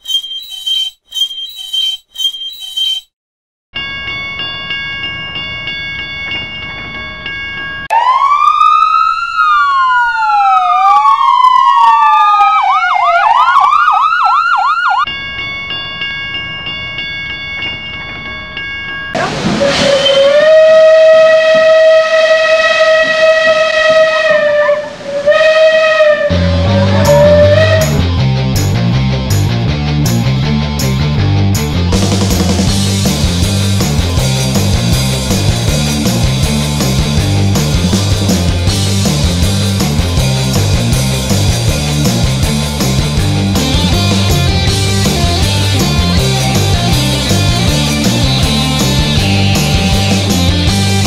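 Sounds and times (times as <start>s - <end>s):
loud whistle: 0.0s - 3.1s, 19.6s - 28.0s
steady electronic tone: 0.0s - 3.1s
police sirens wailing: 7.9s - 15.1s, 19.2s - 28.1s.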